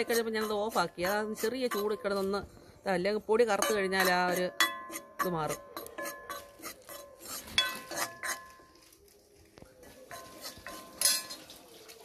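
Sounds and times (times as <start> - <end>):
steel ladle scraping iron pan: 0.0 - 2.4, 3.4 - 8.7, 10.1 - 11.7.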